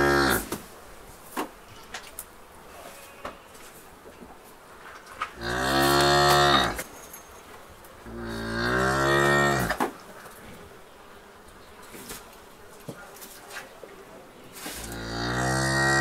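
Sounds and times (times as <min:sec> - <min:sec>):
cow mooing: 0:00.0 - 0:00.4, 0:05.4 - 0:06.8, 0:08.1 - 0:09.8, 0:14.9 - 0:16.0.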